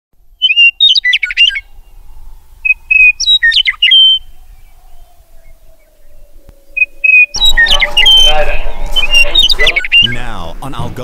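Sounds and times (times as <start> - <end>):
songbird singing whistled phrases: 0.3 - 2.0, 2.6 - 10.2.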